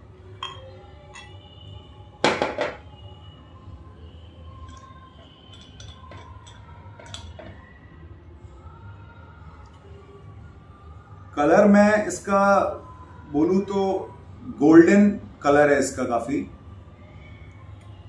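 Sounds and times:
light glass clinks: 0:00.3 - 0:01.6, 0:04.6 - 0:07.6.

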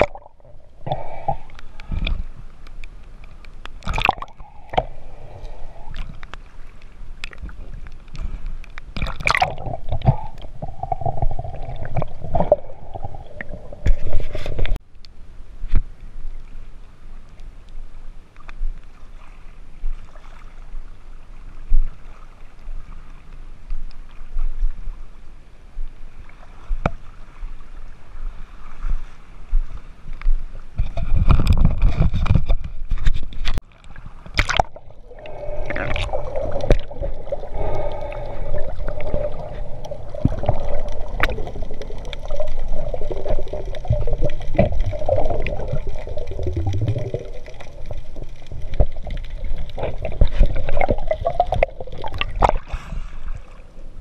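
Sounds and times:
water sloshing and splashing: 0:00.0 - 0:14.8, 0:30.6 - 0:54.0.

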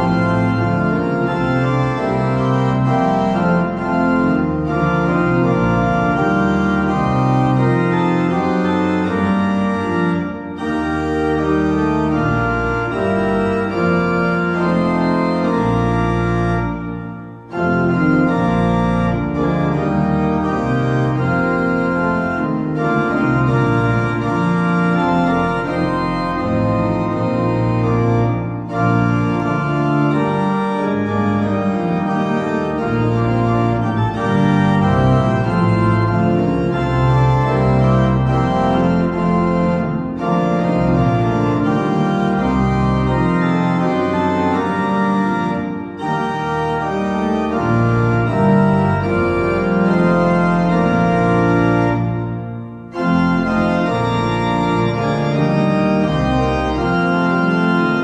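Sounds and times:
pipe organ chords: 0:00.0 - 0:58.0.

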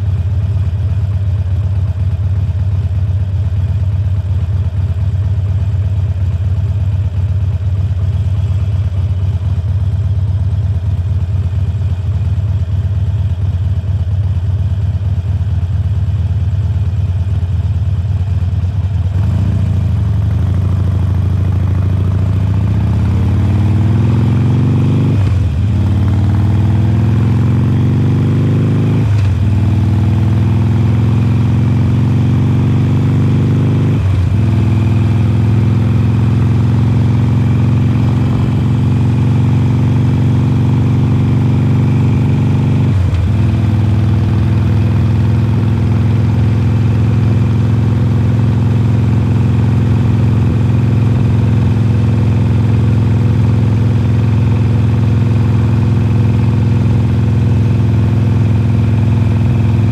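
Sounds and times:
motorcycle engine revving: 0:17.6 - 0:59.9.

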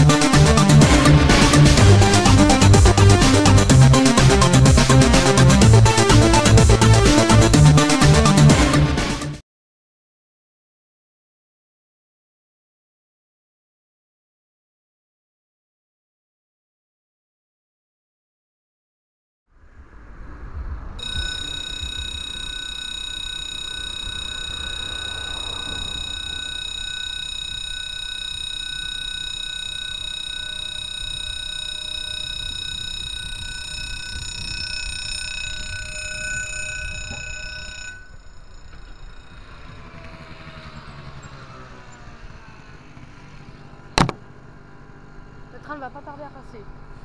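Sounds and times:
level crossing bell ringing: 0:00.0 - 0:08.8, 0:21.0 - 0:41.3.

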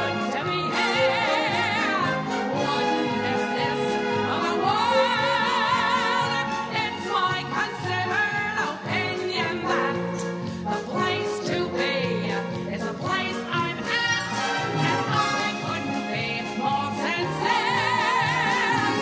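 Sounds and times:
orchestral backing track: 0:00.0 - 0:19.0.

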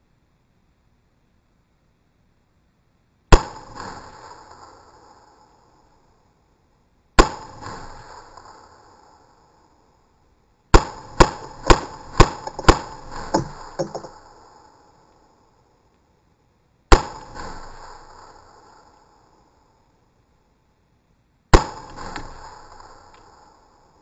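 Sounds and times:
rifle shots echoing: 0:10.7 - 0:14.2, 0:21.5 - 0:23.6
faint knocks: 0:13.3 - 0:14.1.

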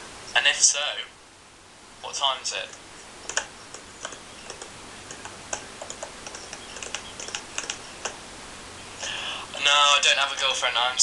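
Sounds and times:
typing on computer keyboard: 0:02.7 - 0:08.2.

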